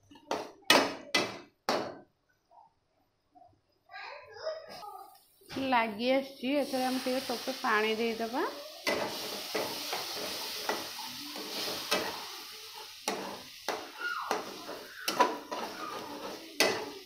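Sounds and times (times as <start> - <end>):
spices sizzling in a pan: 5.4 - 17.0
metal spatula scraping a pan: 8.5 - 17.0.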